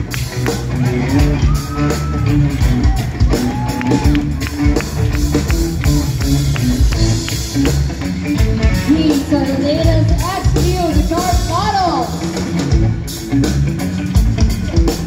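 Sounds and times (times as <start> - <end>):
drum kit beat: 0.0 - 15.0
electric bass: 0.0 - 15.0
live rock band playing: 0.0 - 15.0.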